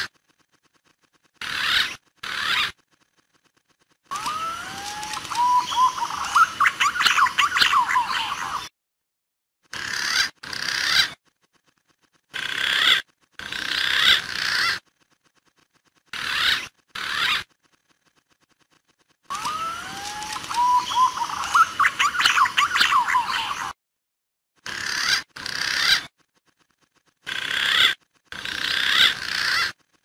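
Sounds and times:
pigeon whistled calls: 4.1 - 8.7, 19.3 - 23.8.

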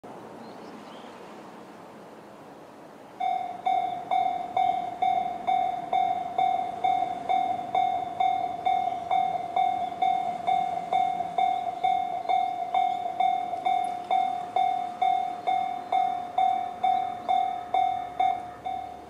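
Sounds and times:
level crossing alarm dinging: 3.2 - 19.0.

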